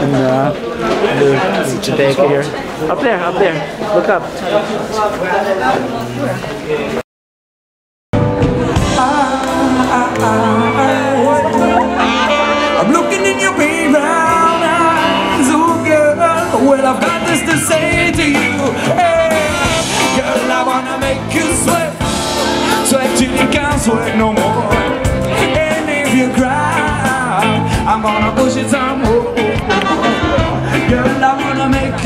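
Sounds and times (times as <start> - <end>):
live band playing: 0.0 - 3.5, 8.2 - 32.0
person singing: 8.6 - 32.0.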